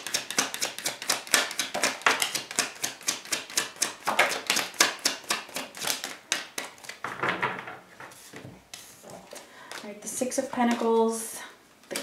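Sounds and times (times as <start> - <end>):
cards being shuffled: 0.0 - 7.0.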